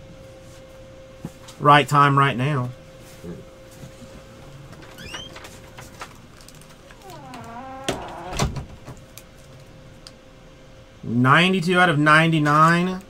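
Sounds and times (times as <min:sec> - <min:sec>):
door creaking open: 0:04.8 - 0:05.9, 0:06.8 - 0:09.0.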